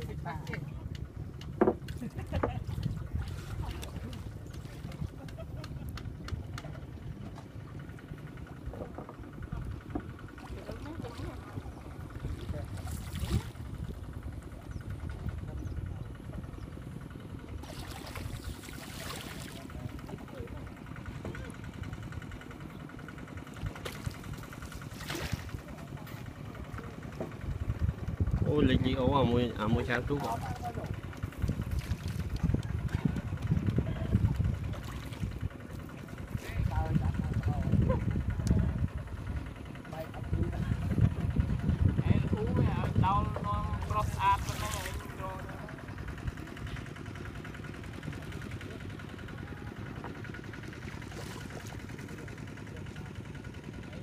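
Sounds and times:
boat engine idling: 0.0s - 54.0s
water splash: 17.6s - 19.7s, 24.9s - 25.6s, 44.0s - 45.1s.

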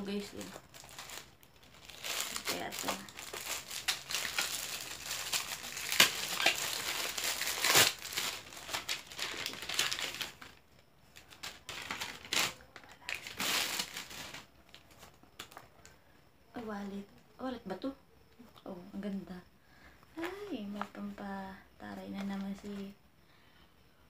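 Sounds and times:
plastic packaging crinkling: 0.0s - 15.9s.

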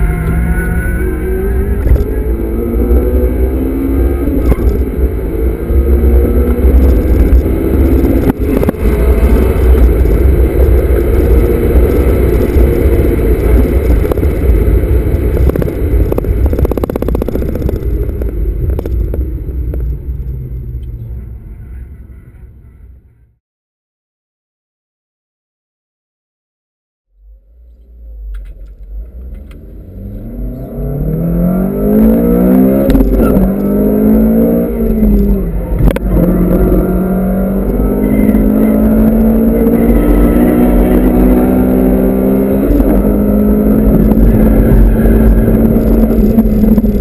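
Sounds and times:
car engine accelerating: 0.0s - 21.4s, 27.2s - 47.0s
road and wind noise rumble: 0.0s - 23.4s, 27.1s - 47.0s.

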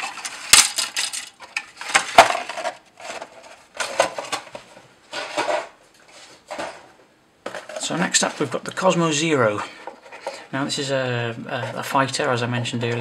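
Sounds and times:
plastic and cardboard clattering: 0.0s - 8.6s.

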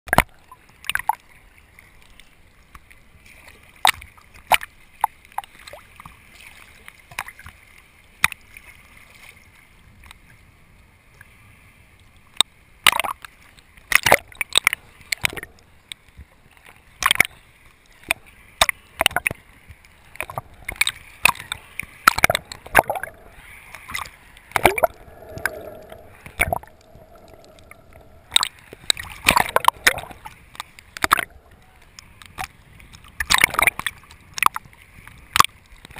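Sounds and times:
underwater clicks and knocks: 13.9s - 16.3s, 17.0s - 35.9s
faint hum: 20.2s - 32.3s
underwater hiss: 20.3s - 30.4s.

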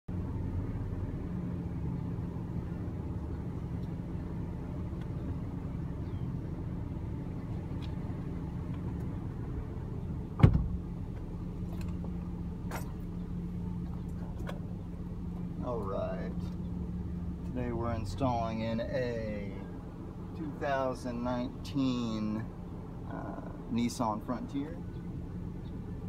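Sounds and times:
pickup engine idling: 0.1s - 26.0s
sharp thump: 10.4s - 10.8s.

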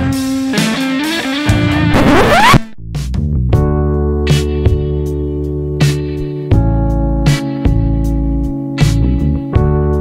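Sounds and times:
background music with chords and bass: 0.0s - 10.0s
sharp falling hit: 1.8s - 3.1s.

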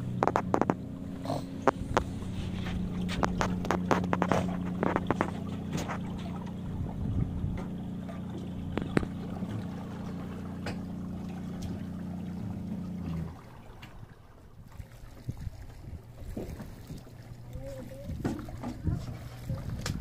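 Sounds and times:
electric trolling motor humming: 0.0s - 15.0s
water slapping against hull: 0.0s - 20.0s.

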